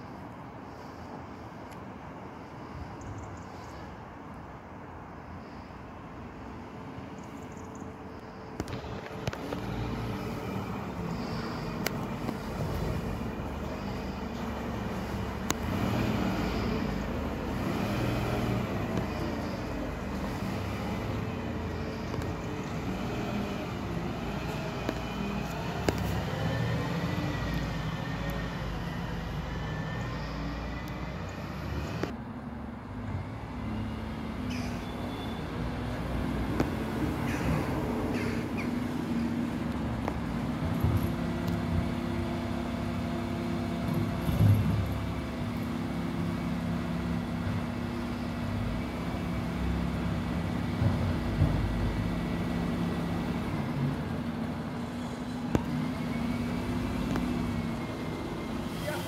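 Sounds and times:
lorry engine idling: 7.2s - 32.2s.

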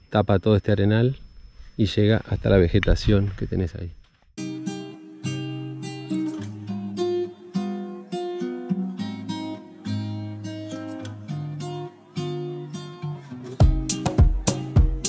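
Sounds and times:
acoustic guitar music: 4.4s - 15.0s.

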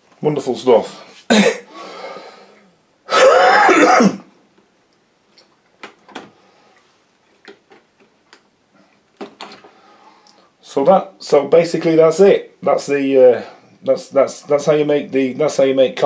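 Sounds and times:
man clearing throat and coughing: 1.3s - 1.8s, 3.1s - 4.3s.

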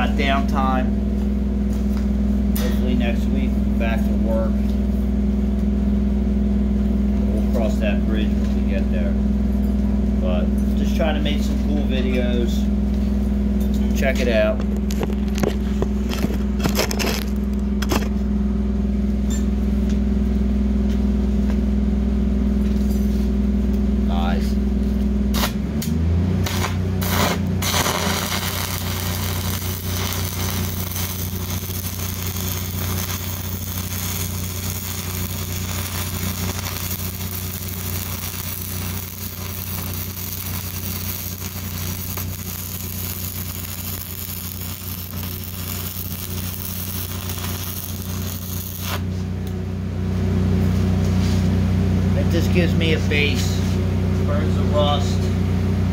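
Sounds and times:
low hum: 0.0s - 55.9s
welding arc crackling hiss: 25.3s - 25.6s, 26.4s - 49.1s.

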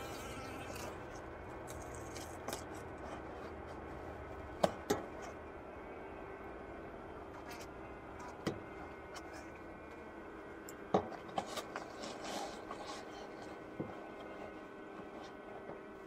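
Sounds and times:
honeybees humming in hive: 0.0s - 3.0s.

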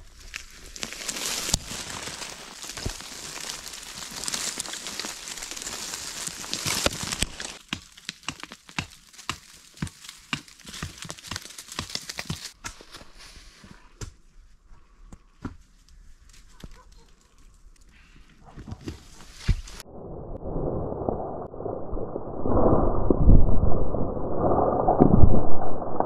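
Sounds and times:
footsteps on gravel and leaves: 0.0s - 13.6s
earth and stones sliding down: 0.0s - 13.8s, 18.8s - 26.0s.

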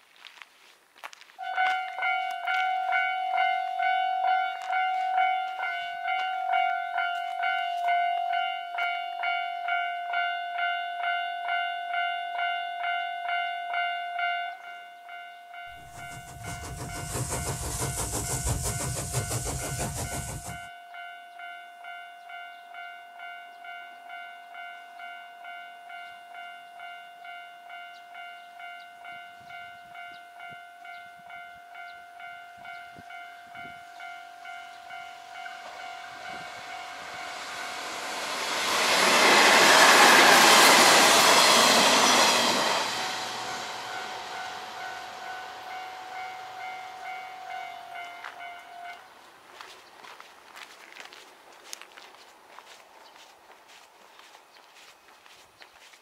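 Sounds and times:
train passing: 1.4s - 10.7s, 15.6s - 20.7s, 26.0s - 55.9s
level-crossing warning bell: 1.4s - 49.7s.

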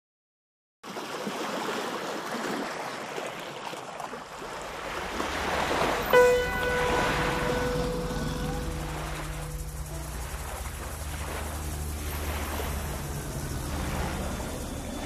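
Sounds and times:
sustained musical note: 6.0s - 15.0s.

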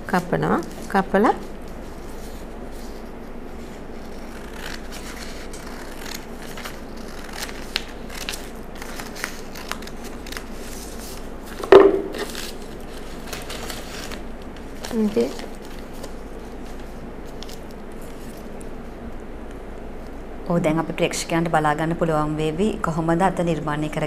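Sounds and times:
scissors snipping paper: 4.1s - 11.2s
loud knock: 11.7s - 12.2s.

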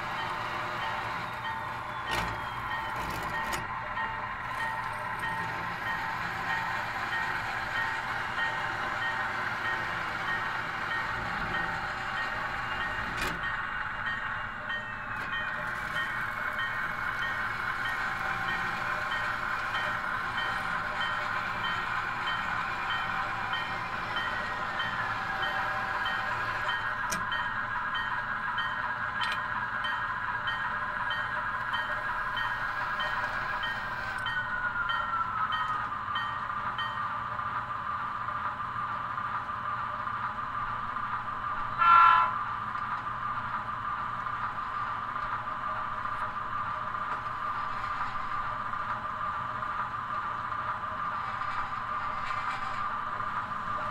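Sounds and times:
model train humming: 0.0s - 53.9s
loud horn blast: 41.8s - 42.4s.

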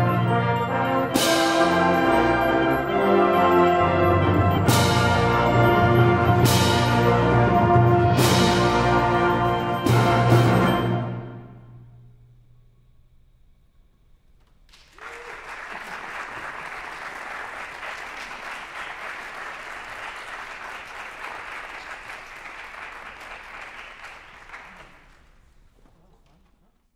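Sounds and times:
audience applause: 14.7s - 25.4s.

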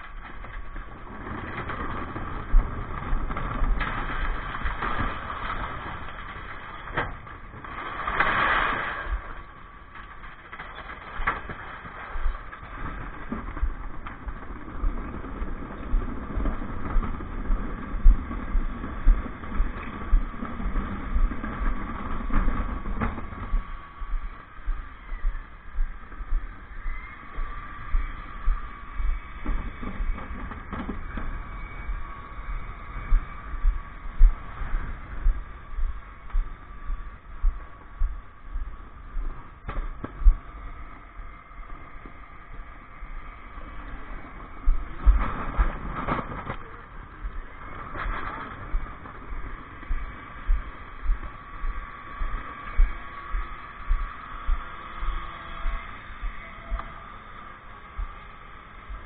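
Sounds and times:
knocks and rattles: 0.0s - 23.7s
steady whine: 0.0s - 59.0s.

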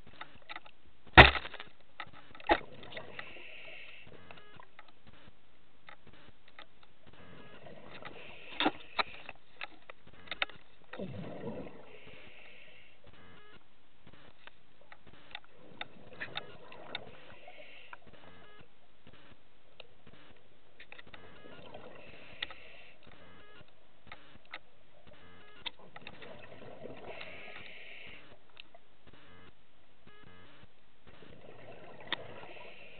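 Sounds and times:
exhaled bubbles rushing: 11.0s - 12.0s, 25.8s - 27.5s, 31.2s - 32.8s.

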